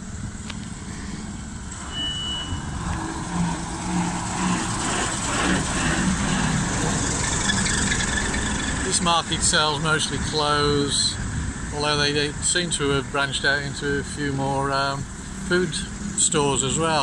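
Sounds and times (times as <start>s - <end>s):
bus engine rumbling past: 0.0s - 17.0s
brief high beep: 1.8s - 2.9s.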